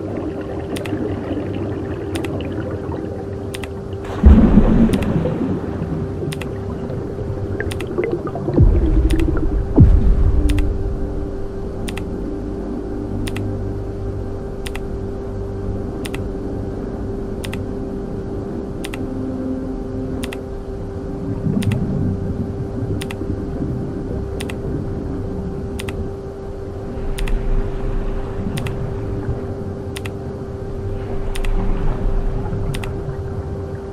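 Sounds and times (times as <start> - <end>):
sharp click: 10.5 - 10.7, 11.9 - 12.1, 13.2 - 13.5, 14.6 - 14.9, 16.0 - 16.2, 17.4 - 17.6, 20.2 - 20.4, 21.6 - 21.8, 25.8 - 26.0, 30.0 - 30.2, 31.3 - 31.6.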